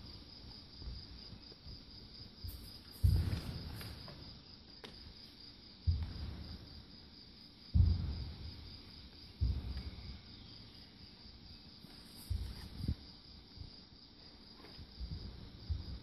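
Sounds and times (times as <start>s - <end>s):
crickets chirping: 0.0s - 16.0s
dull low thumps: 0.7s - 4.1s, 5.8s - 6.8s, 7.6s - 10.5s, 12.3s - 13.0s, 14.9s - 16.0s.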